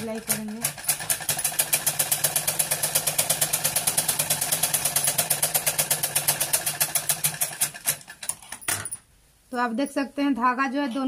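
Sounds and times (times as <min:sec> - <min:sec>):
sewing machine stitching: 0:00.0 - 0:08.8.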